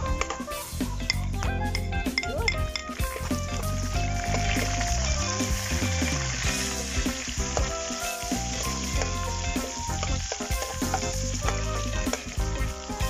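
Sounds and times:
onions sizzling in a wok: 3.0s - 13.0s.

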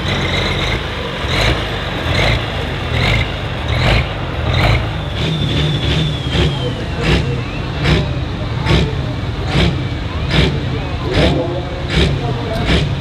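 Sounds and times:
diesel tractor engine running: 0.0s - 13.0s.

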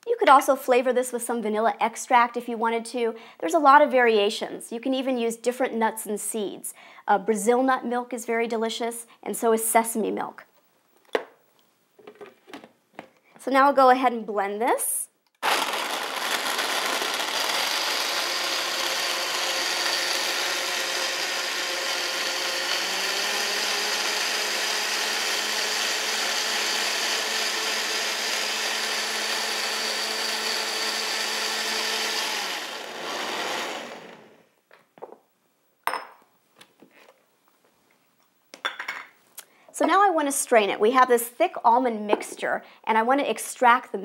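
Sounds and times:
blender running at high speed: 15.4s - 34.5s.

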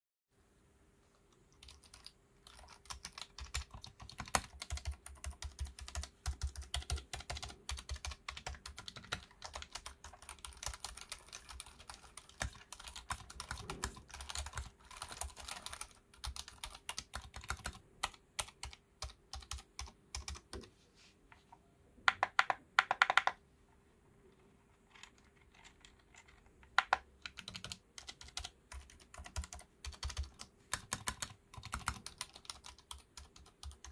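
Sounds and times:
mechanical keyboard typing: 1.5s - 20.7s, 22.1s - 23.4s, 24.9s - 33.9s.

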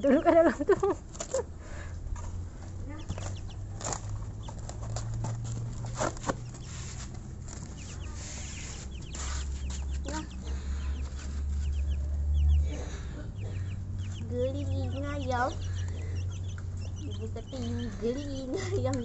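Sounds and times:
chicks peeping: 0.0s - 19.0s
knocks and rustles: 2.1s - 10.3s.

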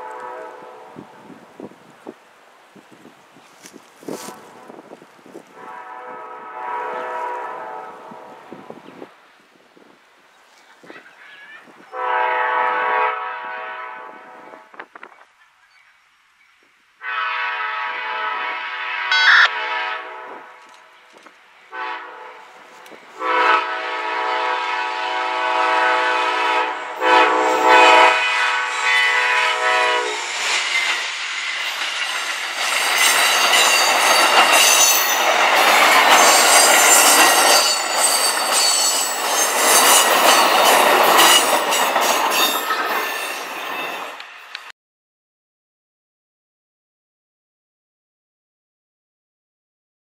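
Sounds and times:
train horn blasts: 0.0s - 1.3s, 5.5s - 8.8s, 11.9s - 14.9s, 17.0s - 20.9s, 21.7s - 30.3s
train wheels clickety-clack: 30.2s - 44.7s.

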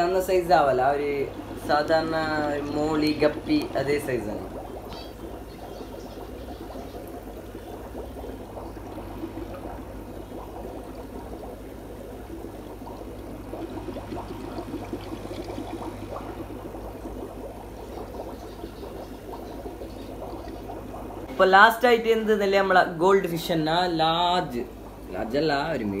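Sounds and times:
low hum: 0.0s - 21.8s
aquarium filter bubbling: 0.0s - 26.0s.

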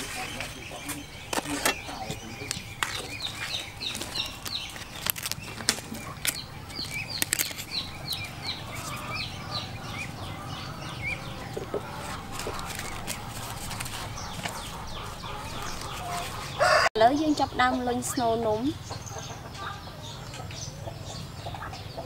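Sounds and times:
bird peeping: 0.0s - 22.0s
crisp clicks of leaves cut: 3.9s - 8.2s.

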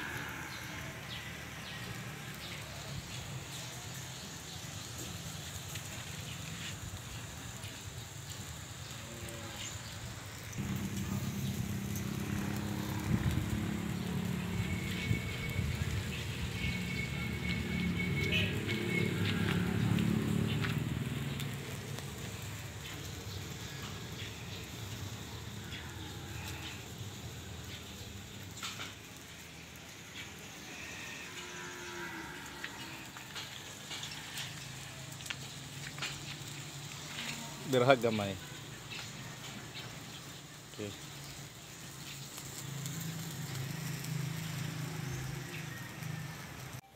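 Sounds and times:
charcoal fire crackling and sizzling: 0.0s - 46.9s.

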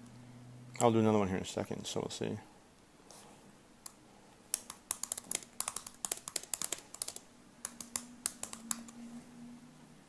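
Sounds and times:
computer keyboard typing: 4.5s - 9.0s.

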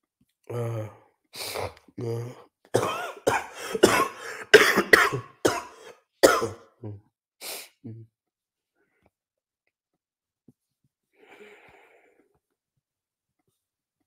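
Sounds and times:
man coughing: 2.8s - 7.0s.

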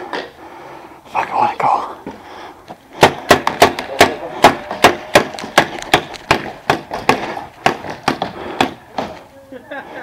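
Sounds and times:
paintball pistols firing: 3.0s - 9.2s.

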